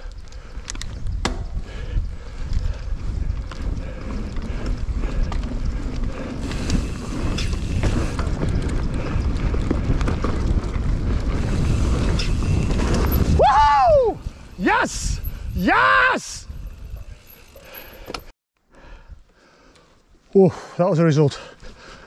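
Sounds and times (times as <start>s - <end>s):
wind rushing over microphone: 0.0s - 17.5s.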